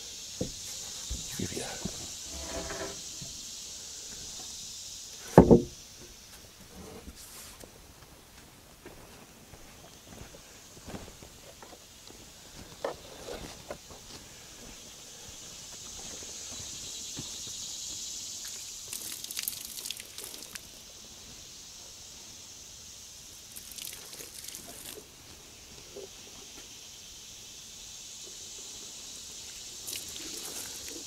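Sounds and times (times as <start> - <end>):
footsteps: 0.4 - 3.4, 6.3 - 14.8
water splashing onto wooden boards: 5.2 - 6.2, 18.4 - 20.8, 23.4 - 25.1, 29.8 - 31.0
handling knocks: 5.4 - 5.8.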